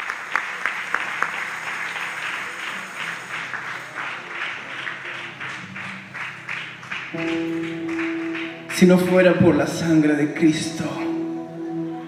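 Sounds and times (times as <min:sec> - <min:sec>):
congregation applauding: 0:00.0 - 0:11.2
soft held instrument notes: 0:07.2 - 0:12.0.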